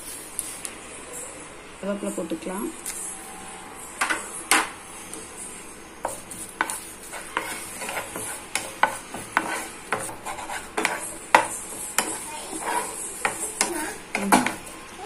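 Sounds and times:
wooden spatula scraping a pan: 6.0s - 14.8s.

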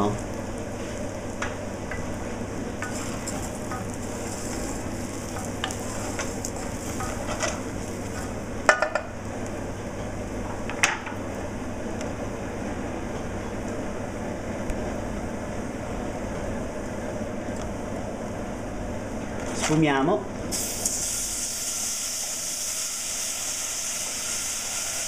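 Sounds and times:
rice sizzling in saucepan: 0.0s - 12.7s, 20.5s - 25.0s.

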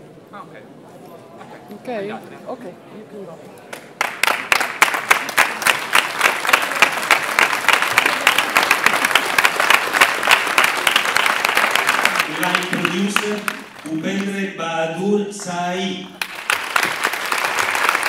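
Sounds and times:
audience applauding: 3.7s - 14.4s, 16.1s - 18.0s.

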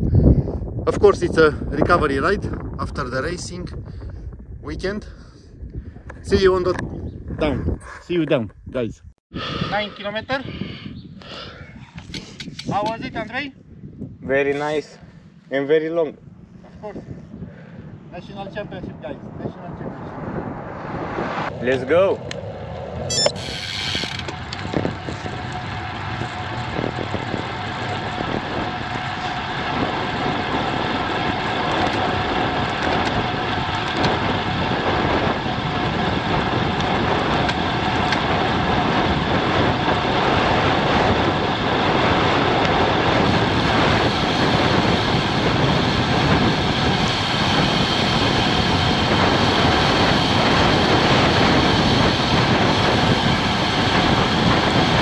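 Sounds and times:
wind rushing on microphone: 0.0s - 55.0s
bike tyres humming on asphalt: 13.8s - 55.0s.

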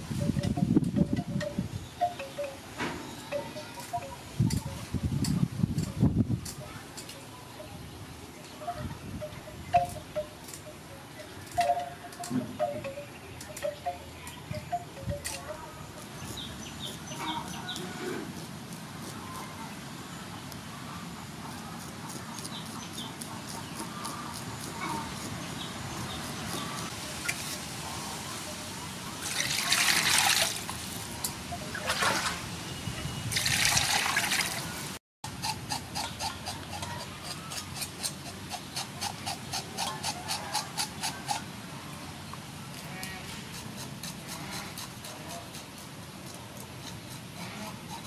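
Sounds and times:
knife scraping fish scales: 21.5s - 27.7s, 35.3s - 41.5s, 42.8s - 48.0s
water splashing in metal basin: 29.3s - 30.7s, 33.3s - 34.6s.

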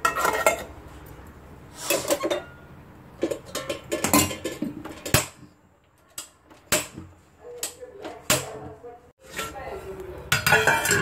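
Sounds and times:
steel containers clattering: 0.0s - 0.8s, 1.7s - 5.4s, 6.2s - 11.0s.

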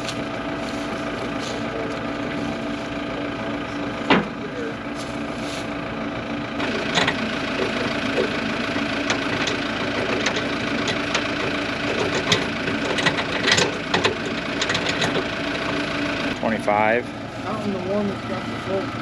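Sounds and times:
diesel engine idling: 0.0s - 19.0s
metallic clinks and knocks: 6.7s - 15.6s.

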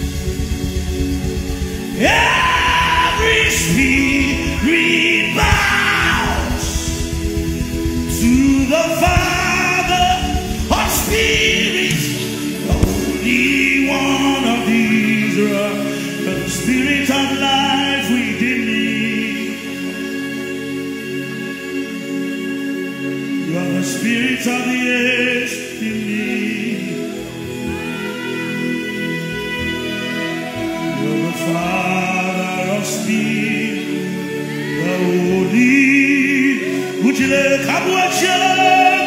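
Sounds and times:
instrumental backing: 0.0s - 17.6s
person singing gospel: 0.0s - 39.0s.

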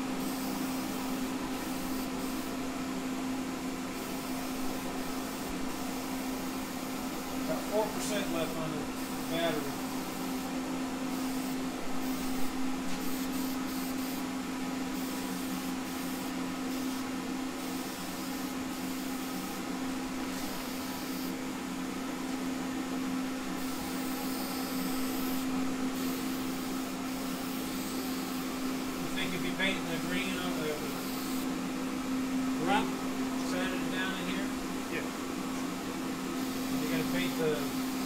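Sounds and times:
heater humming: 0.0s - 38.0s
aerosol spray hissing: 11.1s - 14.2s, 15.0s - 17.0s, 17.6s - 19.6s, 23.6s - 29.1s.

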